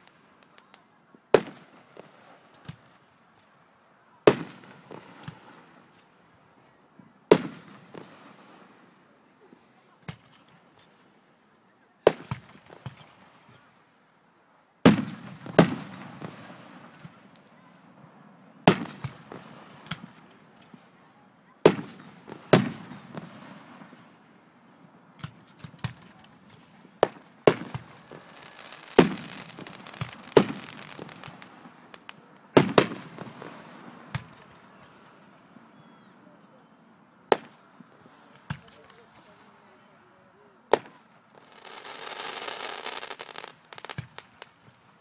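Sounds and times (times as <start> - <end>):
fireworks booming: 0.0 - 3.1, 4.2 - 6.0, 7.3 - 8.6, 14.8 - 17.4, 18.6 - 20.8, 21.6 - 24.1, 25.2 - 35.3, 37.3 - 39.2, 40.7 - 45.0
fireworks hissing: 27.0 - 34.9, 40.7 - 44.8.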